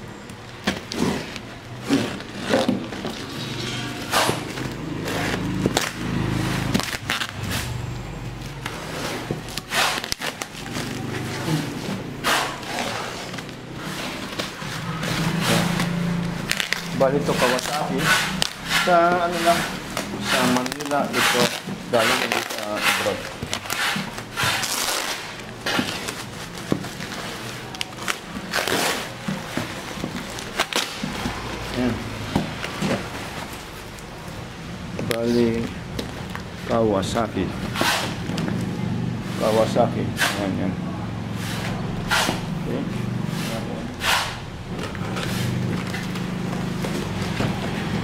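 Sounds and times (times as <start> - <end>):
cardboard box being cut and torn: 4.0 - 6.0, 8.8 - 33.6, 37.7 - 38.3
bubble wrap crinkling and ripping: 4.0 - 7.8, 8.4 - 34.2.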